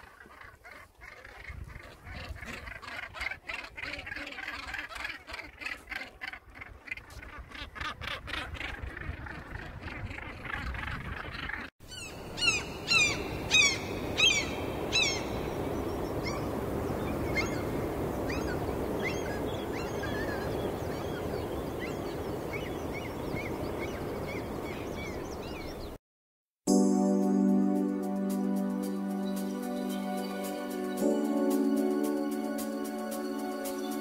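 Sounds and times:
seabirds calling: 0.0 - 26.0.

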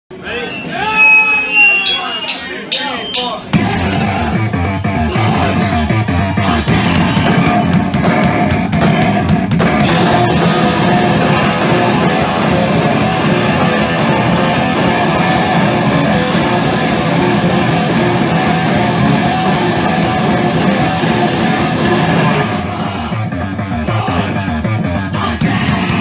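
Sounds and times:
singer shouting: 0.1 - 7.8
distorted electric guitar: 0.1 - 26.0
drums: 0.6 - 26.0
bass guitar: 3.4 - 26.0.

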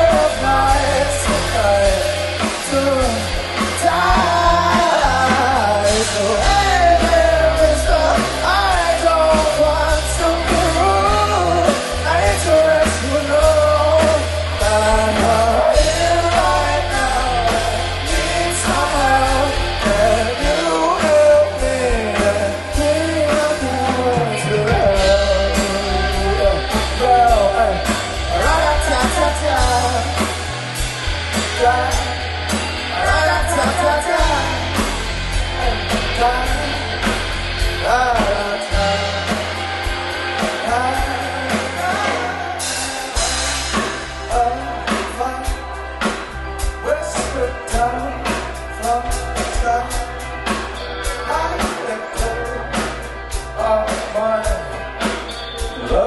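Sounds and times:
bass guitar: 0.0 - 56.0
drum kit: 0.0 - 56.0
electric guitars: 0.0 - 56.0
keyboard: 0.0 - 56.0
person singing lead vocal: 0.0 - 56.0.

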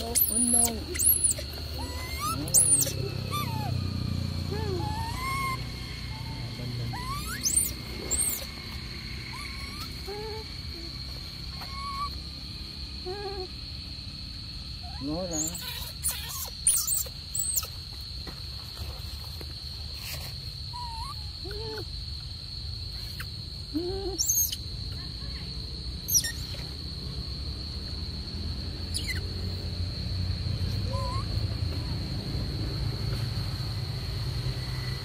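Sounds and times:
monkey high squeaks: 0.0 - 3.8, 4.5 - 8.6, 9.3 - 10.4, 11.5 - 12.1, 14.9 - 17.8, 24.1 - 24.6, 26.1 - 26.6, 28.9 - 29.2, 30.9 - 31.3
monkey coo calls: 0.0 - 12.2, 23.8 - 24.6, 26.1 - 26.6, 28.9 - 29.2, 30.9 - 31.4
high-pitched whine: 0.0 - 13.2.

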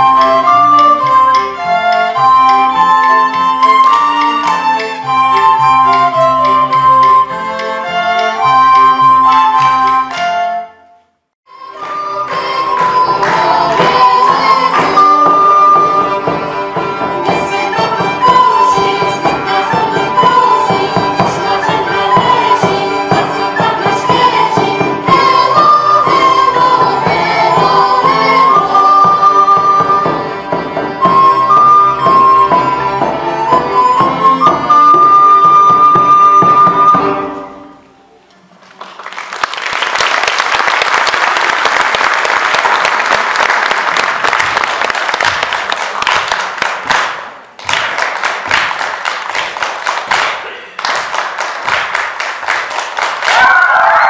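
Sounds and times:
folk-dance band playing: 0.0 - 54.0
audience applauding: 38.4 - 54.0.

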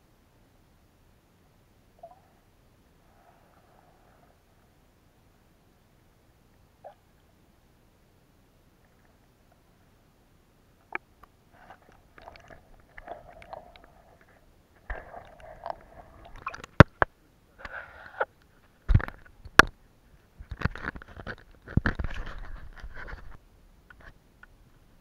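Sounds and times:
camera handling rubbing and rustling: 20.5 - 24.2.

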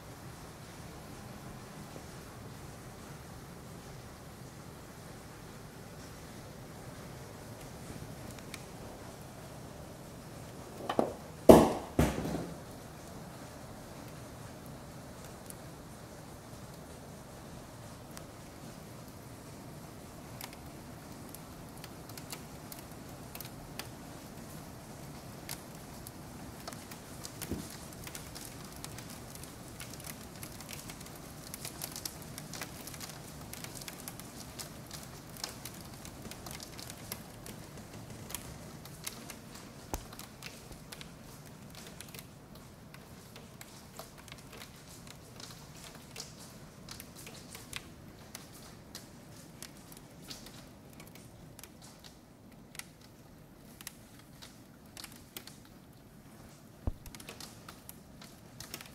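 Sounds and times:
loud thump: 10.8 - 12.6
hailstones pelting pavement: 10.8 - 13.0, 20.2 - 42.4.

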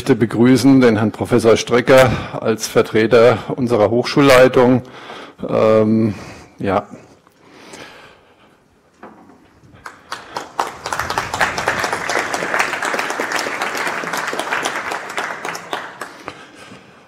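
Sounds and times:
audience applauding: 9.8 - 16.8.

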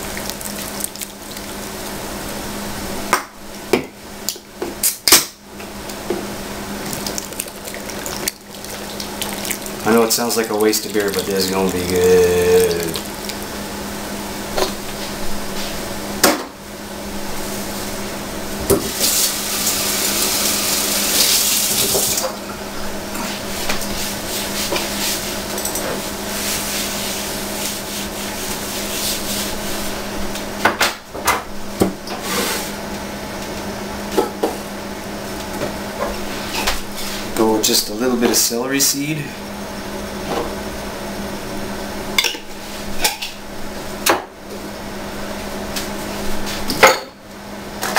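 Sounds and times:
beer pouring onto meat: 6.8 - 13.6.

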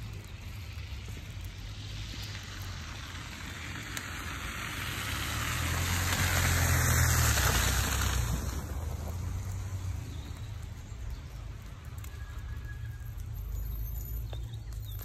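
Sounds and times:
vehicle passing on wet road: 0.0 - 15.0.

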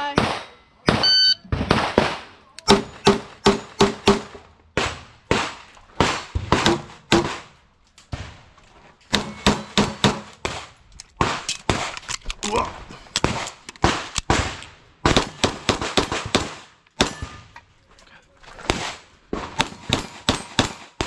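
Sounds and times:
pistol shots: 0.2 - 7.4.

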